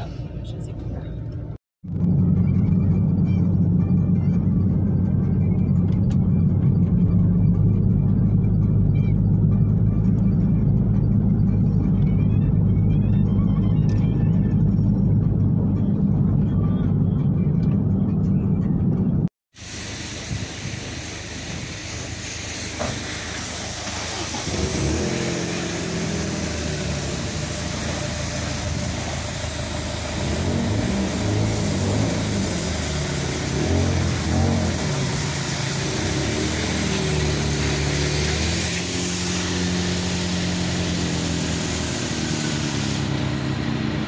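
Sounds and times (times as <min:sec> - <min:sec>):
suv engine revving: 0:20.2 - 0:44.0.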